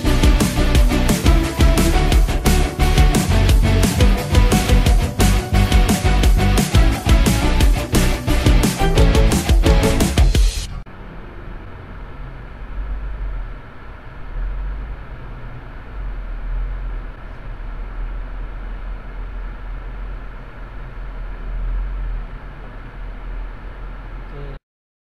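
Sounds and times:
car engine and road rumble: 10.8 - 24.4.

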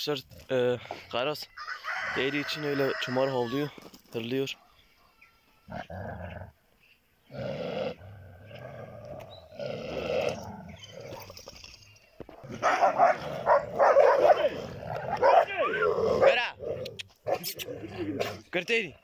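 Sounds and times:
dogs growling and snarling: 5.7 - 6.6, 7.2 - 18.5.

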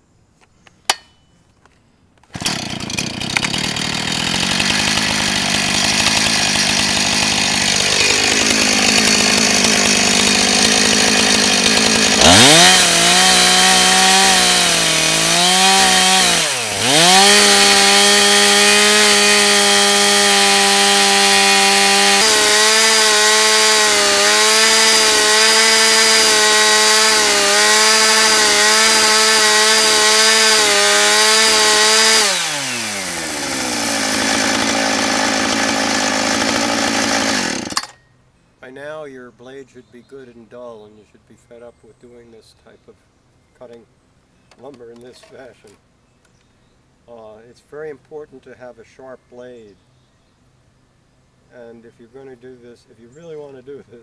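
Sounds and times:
chainsaw revving and cutting log: 2.3 - 38.0.

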